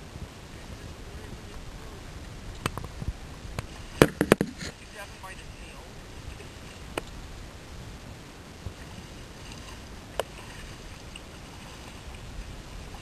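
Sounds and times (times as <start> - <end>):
water churning against hull: 0.0 - 13.0
wind: 0.0 - 13.0
sharp knocks: 4.0 - 4.6.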